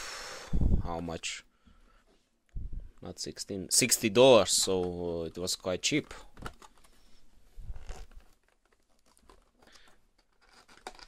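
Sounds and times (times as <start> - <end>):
plastic packaging crinkling: 7.7 - 11.0.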